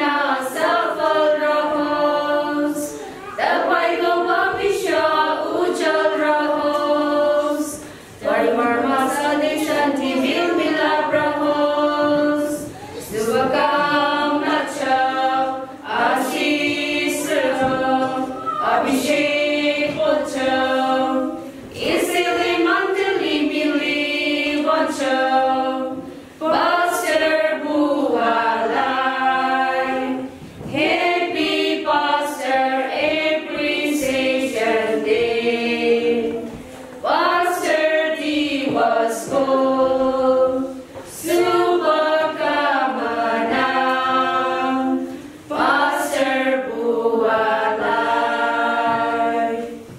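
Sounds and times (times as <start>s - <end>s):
women singing a hymn in unison: 0.0s - 49.9s.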